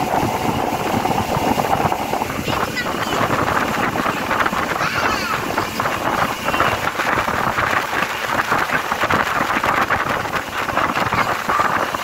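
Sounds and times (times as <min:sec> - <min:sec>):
boat rushing through water: 0:00.0 - 0:12.0
wind buffeting microphone: 0:00.0 - 0:12.0.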